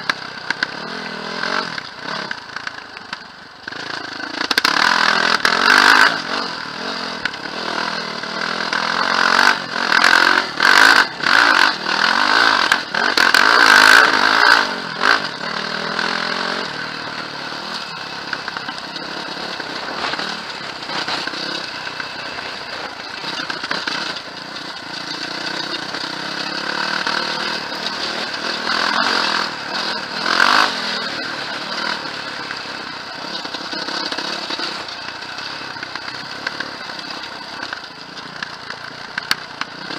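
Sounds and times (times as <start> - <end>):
quad bike engine revving: 0.0 - 39.9.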